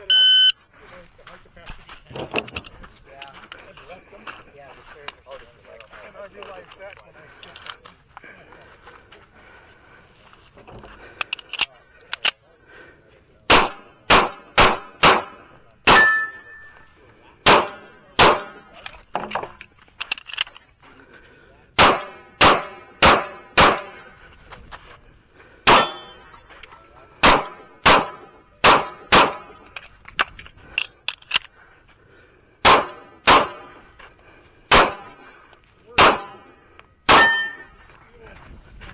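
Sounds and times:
loud pistol shots: 13.5 - 16.3, 17.4 - 18.6, 21.8 - 24.0, 25.6 - 26.1, 27.2 - 29.5, 32.6 - 33.7, 34.7 - 35.2, 36.0 - 36.4, 37.1 - 37.6.

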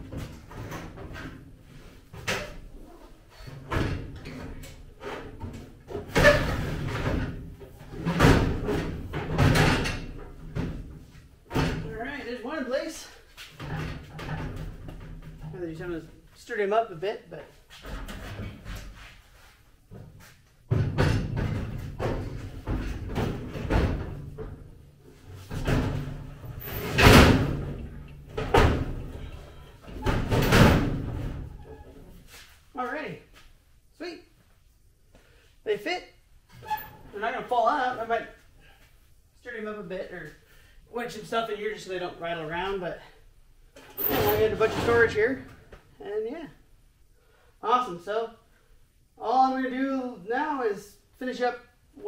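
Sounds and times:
metal cabinets scraping: 3.3 - 11.9, 20.8 - 32.4, 43.9 - 45.5.

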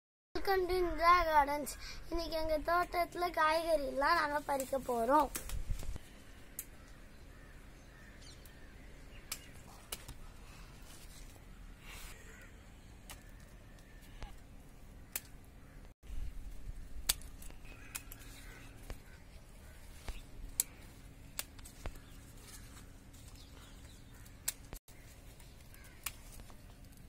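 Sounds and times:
crows cawing faintly: 6.0 - 15.9, 17.4 - 26.7
pruning shears snipping: 9.2 - 10.2, 15.0 - 15.4, 17.0 - 19.2, 19.9 - 23.4, 24.1 - 27.0.

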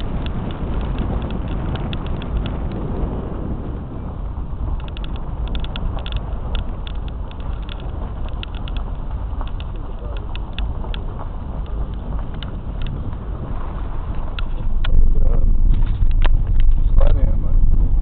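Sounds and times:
car rumbling on dirt road: 0.0 - 18.0
gravel ticking under wheels: 0.0 - 18.0.

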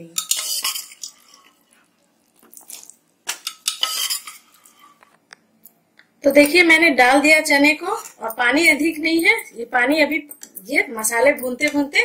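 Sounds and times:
spatula scraping a pan: 0.2 - 1.6, 3.4 - 5.0.

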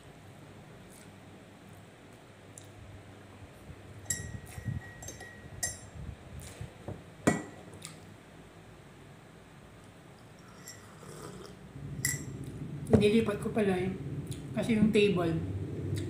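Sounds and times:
ceramic tableware clinking: 4.1 - 5.9, 10.4 - 11.0, 12.0 - 12.3.

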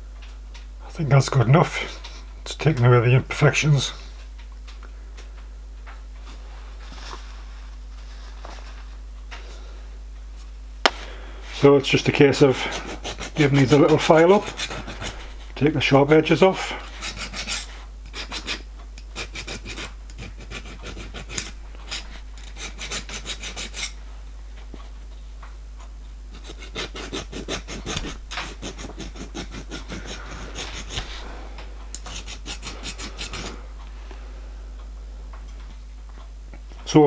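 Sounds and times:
hand file rasping on metal: 12.4 - 15.4, 16.9 - 24.0, 26.3 - 31.3, 32.0 - 33.6.

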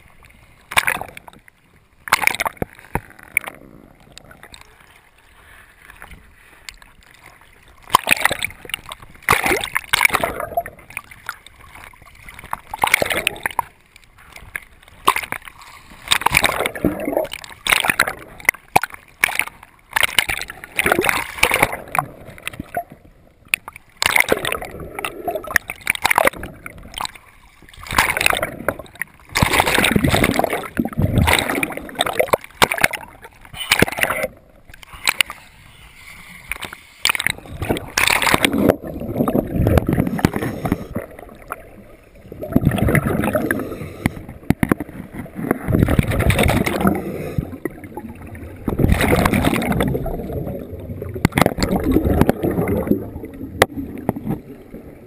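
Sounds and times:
water sloshing and gurgling: 0.0 - 55.0
scuba air bubbles rushing: 7.8 - 13.7, 16.0 - 23.1, 24.0 - 27.1, 27.8 - 35.2, 37.0 - 55.0.

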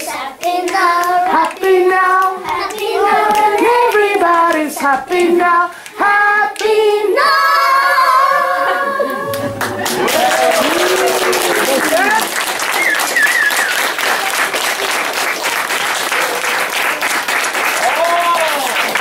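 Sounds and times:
children singing: 0.0 - 10.0.

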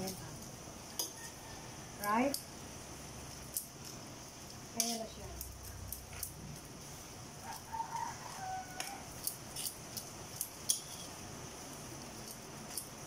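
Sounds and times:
utensils scraping a steel wok: 0.9 - 2.5, 4.8 - 6.7, 7.5 - 11.4.

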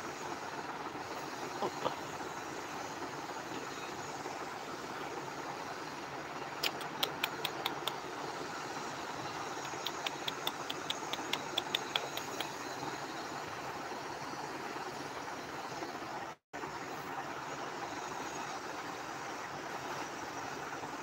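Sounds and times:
quick light clicks: 6.6 - 8.0, 9.6 - 12.6.

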